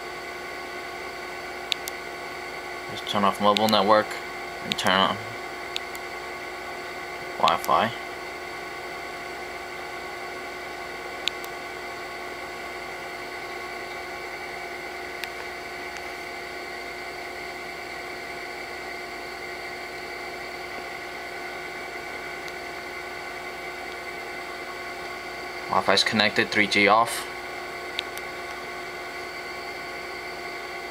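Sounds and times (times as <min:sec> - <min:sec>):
whining hum with hiss: 0:00.0 - 0:30.9
sharp click: 0:01.7 - 0:02.0, 0:11.2 - 0:11.6.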